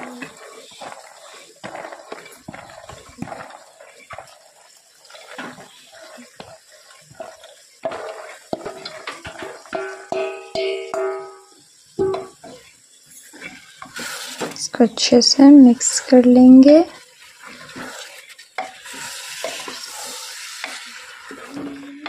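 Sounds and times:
metal clanks ringing: 0:09.8 - 0:12.4.

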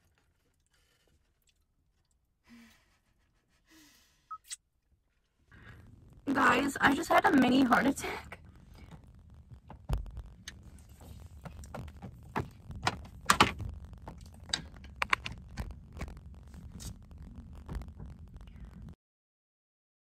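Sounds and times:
rustling: 0:08.4 - 0:19.0.

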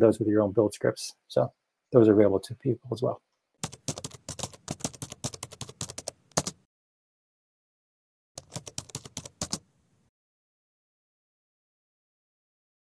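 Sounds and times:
keyboard typing clicks: 0:03.6 - 0:06.6, 0:08.4 - 0:09.6.

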